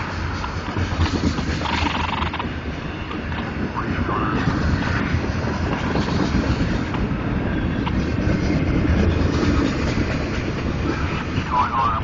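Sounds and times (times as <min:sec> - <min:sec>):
freight train wheels rumbling on rails: 0:00.0 - 0:12.0.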